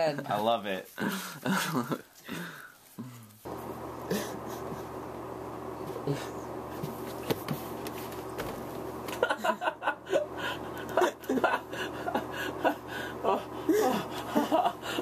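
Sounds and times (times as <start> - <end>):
person chuckling: 1.0 - 3.3, 4.0 - 5.1, 9.1 - 15.0
steady low hum: 3.0 - 15.0.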